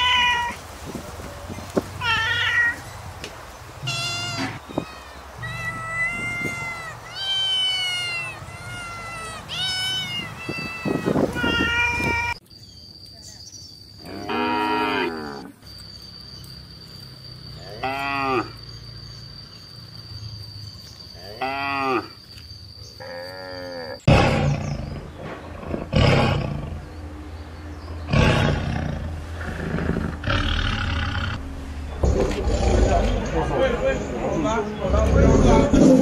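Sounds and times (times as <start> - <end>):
tiger roaring and growling: 23.0 - 26.9, 28.0 - 36.0.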